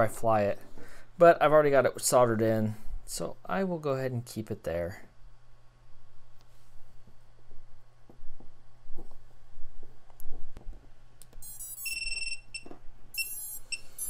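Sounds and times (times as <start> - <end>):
electronic beeps: 11.4 - 14.0.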